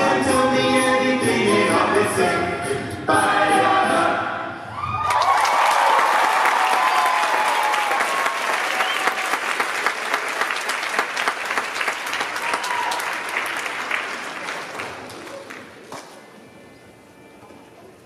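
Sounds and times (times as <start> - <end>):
cheers: 4.7 - 9.9, 12.1 - 13.5
audience applauding: 4.9 - 15.9.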